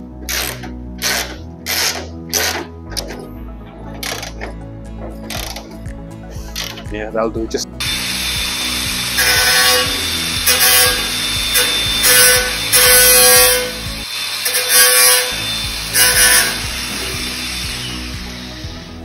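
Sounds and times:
background music with steady beat: 0.0s - 19.0s
cordless drill whirring: 7.8s - 19.0s.

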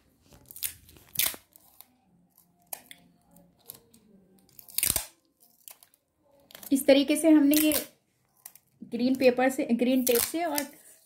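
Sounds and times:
adhesive tape tearing: 0.3s - 6.7s, 7.4s - 8.6s, 9.9s - 11.0s.

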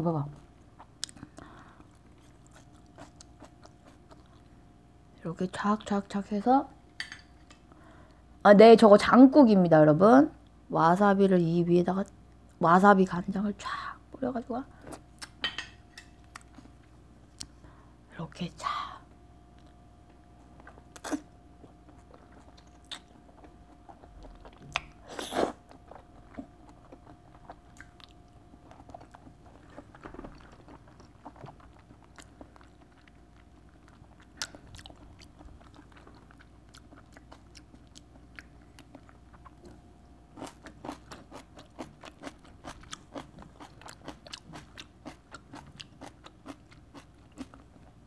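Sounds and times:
soft chewing with wet clicks: 0.6s - 4.6s, 14.9s - 17.6s, 19.5s - 25.0s, 25.6s - 48.0s.

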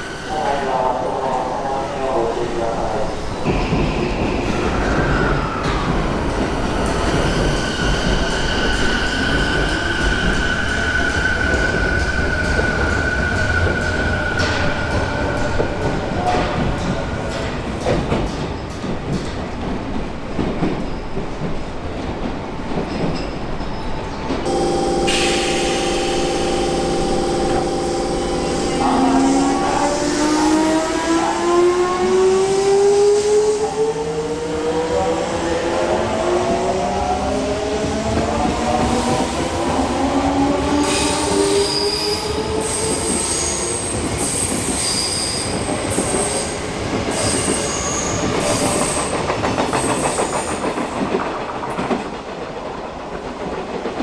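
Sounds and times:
electric train motor whine: 24.5s - 30.6s
steady inverter tones: 24.5s - 31.0s.

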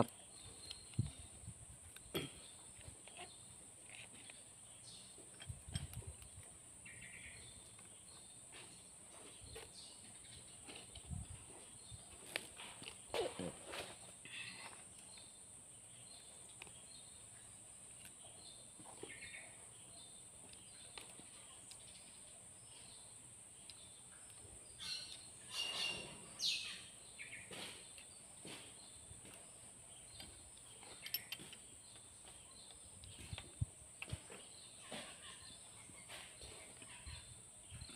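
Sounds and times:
faint metallic tool clicks and scrapes: 30.1s - 32.0s.

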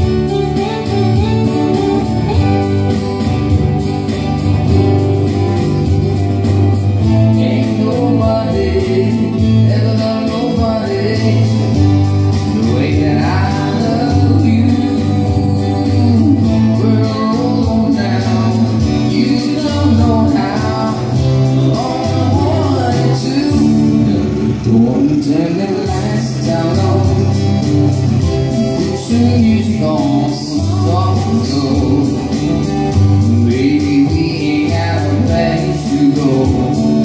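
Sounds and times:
keyboard and bass: 0.0s - 37.0s
person singing: 5.2s - 37.0s.

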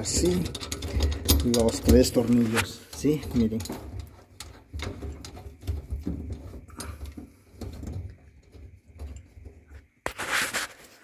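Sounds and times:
screws clicking and scraping: 0.0s - 7.9s.

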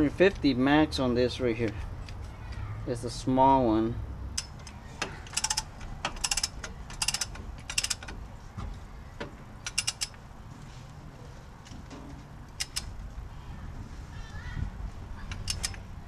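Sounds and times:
torque wrench ratcheting: 4.4s - 8.2s, 9.6s - 10.2s, 12.6s - 12.9s, 15.3s - 15.8s.

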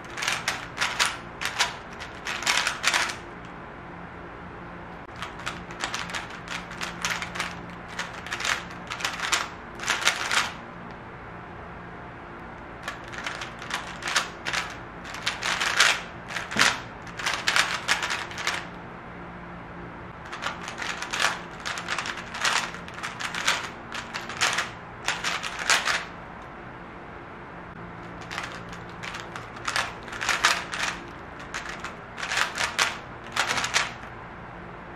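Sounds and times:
puzzle cube plastic clicking: 0.0s - 3.2s, 5.1s - 10.6s, 12.8s - 18.7s, 20.3s - 26.1s, 28.2s - 34.1s.

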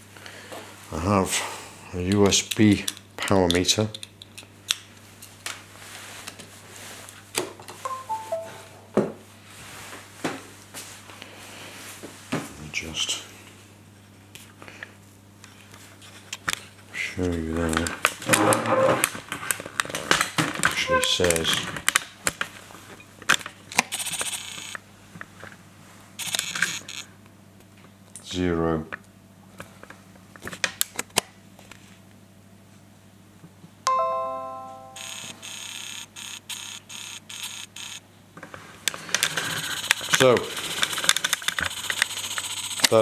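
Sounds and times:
descending electronic chime: 7.9s - 8.8s, 33.9s - 35.5s
zoom lens motor whirr: 24.1s - 24.8s, 35.0s - 38.0s.

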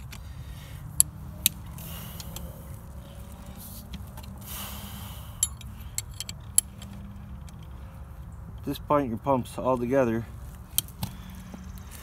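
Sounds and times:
steady low rumble: 0.0s - 12.0s
wrench clinking on metal: 5.4s - 7.6s.

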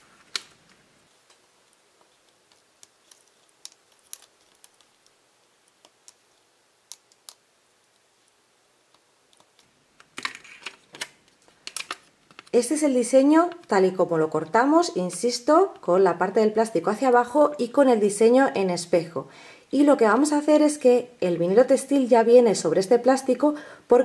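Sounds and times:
plastic crinkling: 0.0s - 12.7s
faint vinyl clicks and ticks: 0.3s - 10.3s.

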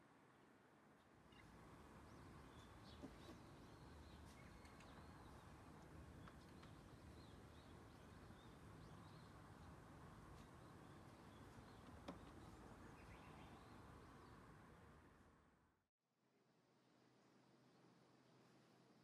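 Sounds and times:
small birds chirping: 1.3s - 14.5s.

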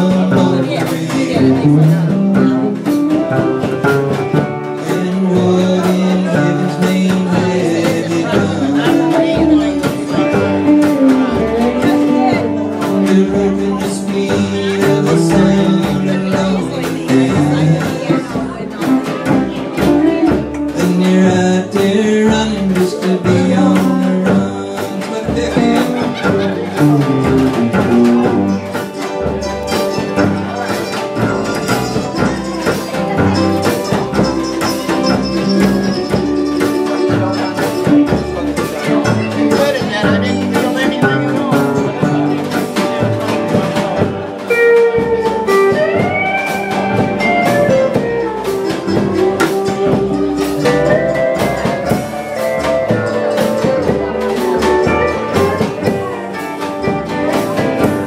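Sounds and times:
drums: 0.0s - 58.0s
strummed acoustic guitar: 0.0s - 58.0s
upright bass: 0.0s - 58.0s
pedal steel guitar sliding: 25.7s - 40.8s.

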